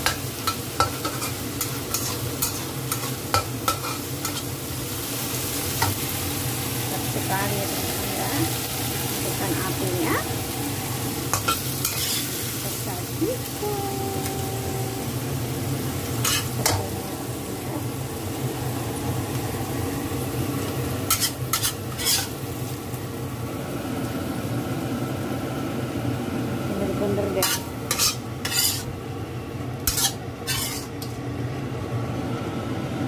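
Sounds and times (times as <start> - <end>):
food sizzling in a wok: 0.0 - 33.0
metal spatula scraping wok: 0.1 - 4.5, 11.3 - 12.6, 16.2 - 16.8, 21.0 - 22.4, 27.4 - 28.9, 29.8 - 31.2.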